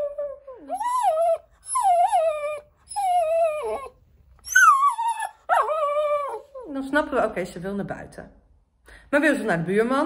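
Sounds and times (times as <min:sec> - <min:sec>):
dog whining: 0:00.0 - 0:06.8.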